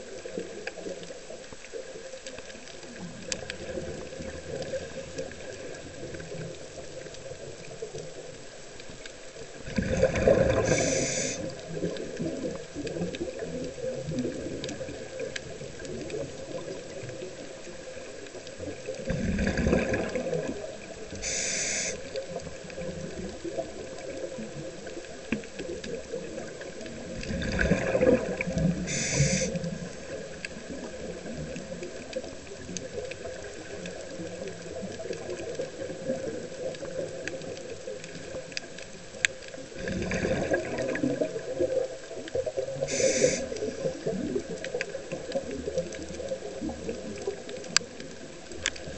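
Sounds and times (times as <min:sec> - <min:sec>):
steady underwater hiss: 0:00.0 - 0:48.9
exhaled bubbles rushing: 0:02.8 - 0:07.8, 0:09.5 - 0:38.6, 0:39.6 - 0:48.9
regulator hiss: 0:10.6 - 0:11.5, 0:21.1 - 0:22.2, 0:28.8 - 0:29.8, 0:42.8 - 0:43.8.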